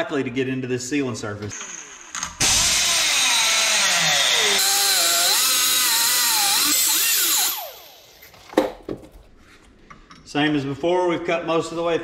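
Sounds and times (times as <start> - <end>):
angle grinder cutting steel: 1.6 - 8.1.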